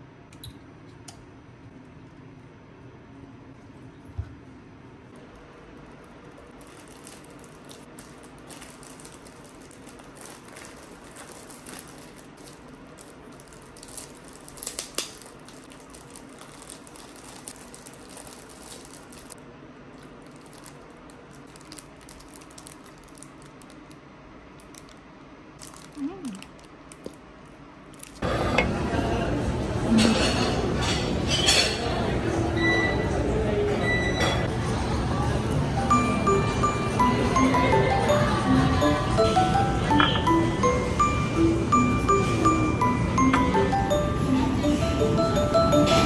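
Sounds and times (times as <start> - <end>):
plastic bag crinkling: 5.2 - 25.0, 25.6 - 28.2.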